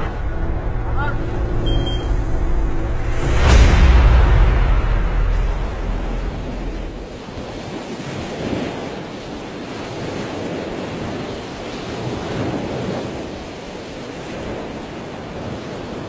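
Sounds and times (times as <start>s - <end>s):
deep low rumble: 0.0s - 7.3s
sea waves washing: 0.0s - 16.0s.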